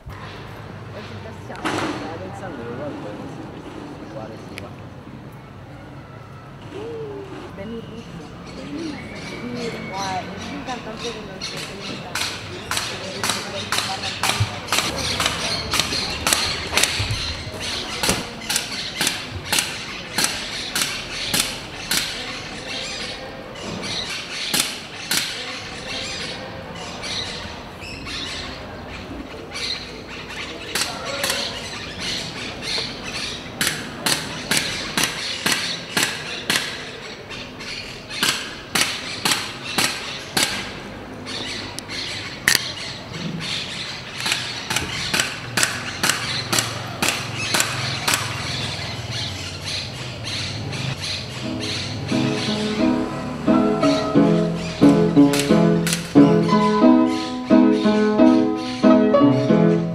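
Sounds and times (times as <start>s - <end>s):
sharp knocks: 12.1s - 22.2s.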